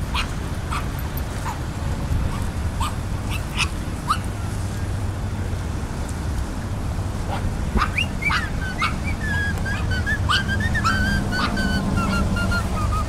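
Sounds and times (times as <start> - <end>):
animal yelping: 0.1 - 1.6, 2.3 - 4.3, 7.3 - 13.0.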